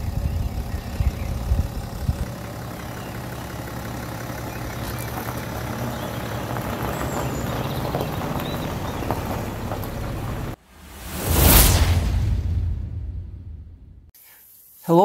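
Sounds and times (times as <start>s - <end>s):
diesel car engine at low revs: 0.0s - 10.6s
tyres on gravel: 0.0s - 10.6s
low buffeting rumbles: 0.0s - 14.1s.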